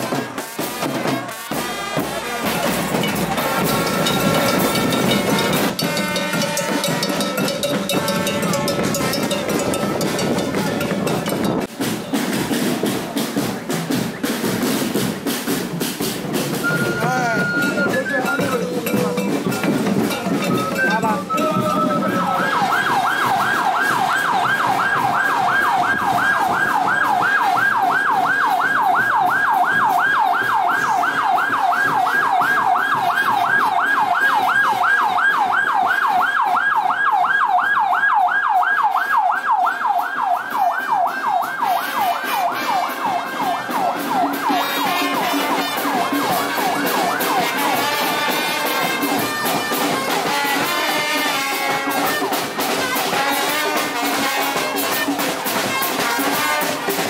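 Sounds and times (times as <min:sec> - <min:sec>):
band music: 0:00.0 - 0:36.6, 0:39.4 - 0:57.0
siren warbling: 0:16.6 - 0:38.1.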